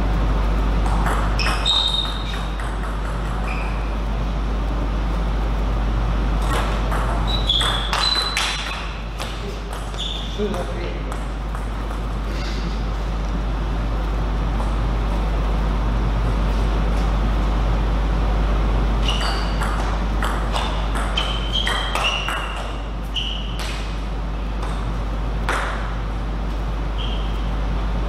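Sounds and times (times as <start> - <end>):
steady low hum: 0.0 - 28.0
table tennis ball hits: 0.8 - 3.9, 6.4 - 12.2, 19.0 - 22.8, 23.4 - 24.0, 24.6 - 26.0.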